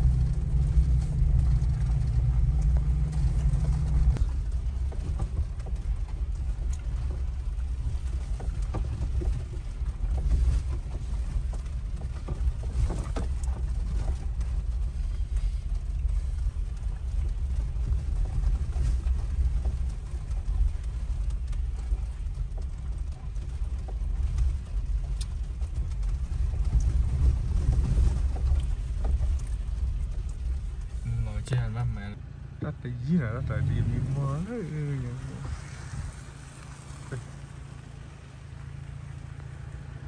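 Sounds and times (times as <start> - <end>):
knocks and rattles: 0.0 - 14.8
vehicle rumble on dirt road: 0.0 - 40.0.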